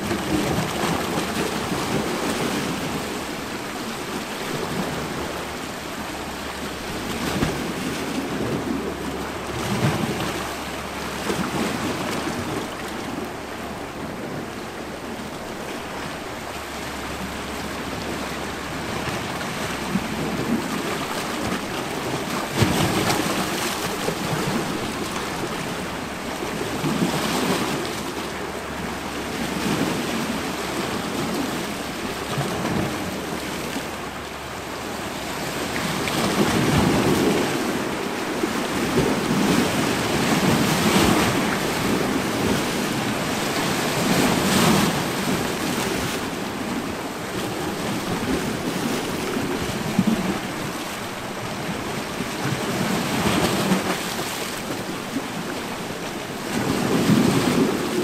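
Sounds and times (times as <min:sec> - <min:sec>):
waves splashing on rocks: 0:18.8 - 0:58.0.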